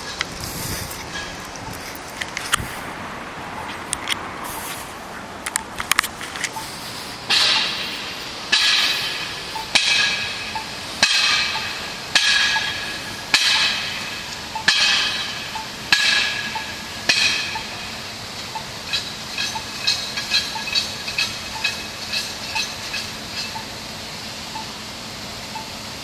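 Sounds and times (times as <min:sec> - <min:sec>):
ringing metallic clangs: 0:07.3 - 0:23.7.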